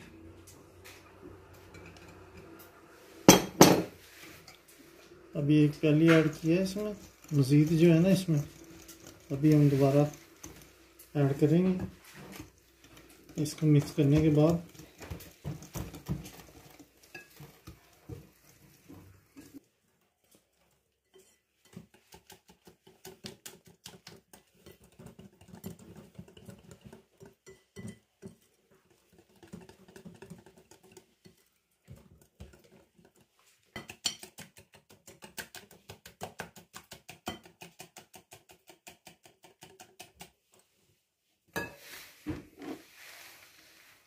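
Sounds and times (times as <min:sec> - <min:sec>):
whisk clicking against glass bowl: 0:06.2 - 0:11.8, 0:32.2 - 0:40.3.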